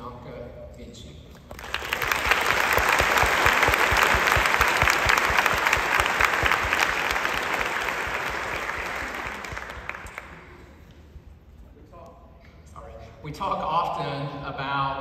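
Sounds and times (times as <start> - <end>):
audience applauding: 1.5 - 10.7.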